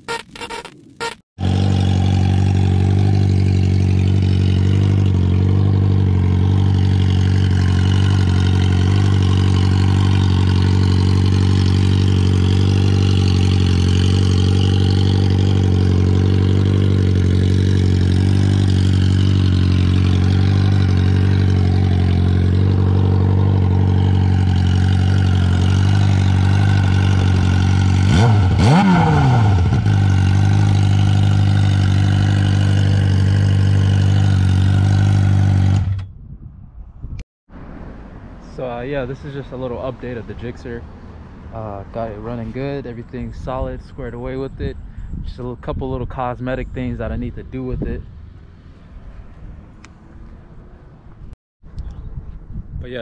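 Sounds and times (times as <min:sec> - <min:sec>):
motorcycle engine idling: 0:01.4 - 0:28.8, 0:29.6 - 0:35.9.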